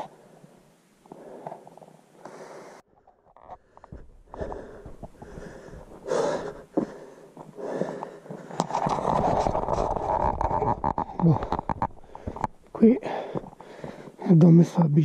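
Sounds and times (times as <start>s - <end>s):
person breathing: 0.0s - 2.9s, 3.5s - 8.8s, 11.2s - 14.2s.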